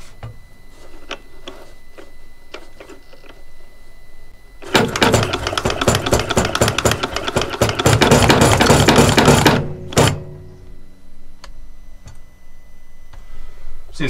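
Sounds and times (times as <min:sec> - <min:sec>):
faint hum: 0:00.0 - 0:14.0
throttle motor buzzing and rattling: 0:04.6 - 0:10.3.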